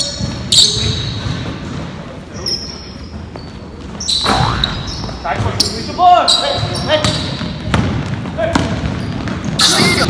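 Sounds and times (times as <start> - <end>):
sneakers squeaking on gym floor: 0.0 - 10.0
basketball bouncing: 6.6 - 10.0.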